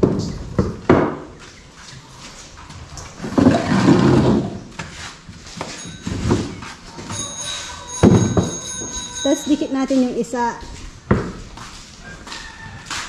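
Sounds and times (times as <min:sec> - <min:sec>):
bench scraping on concrete: 0:03.1 - 0:09.2.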